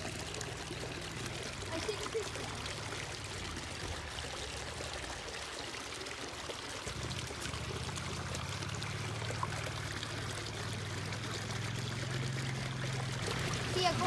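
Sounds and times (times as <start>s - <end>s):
spring water pouring and trickling: 0.0s - 14.0s.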